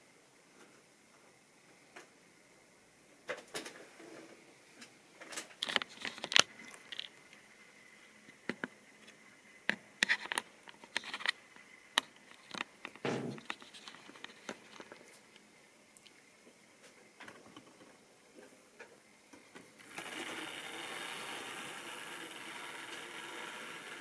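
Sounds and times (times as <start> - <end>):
faint steady whine: 0.0 - 24.0
model train wheels clicking: 19.8 - 24.0.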